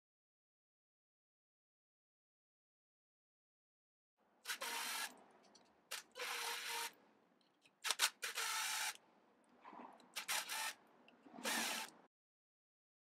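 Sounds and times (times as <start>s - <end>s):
cordless screwdriver whirring: 4.5s - 5.1s, 5.9s - 7.0s, 7.8s - 9.0s, 10.2s - 10.8s, 11.4s - 11.9s.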